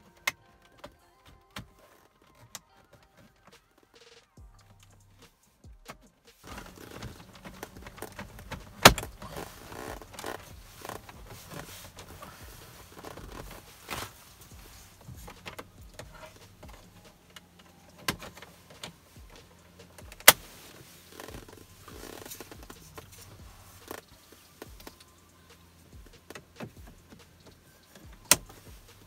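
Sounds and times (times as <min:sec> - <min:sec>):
plastic trim rustling and clicking: 0:06.4 - 0:25.1.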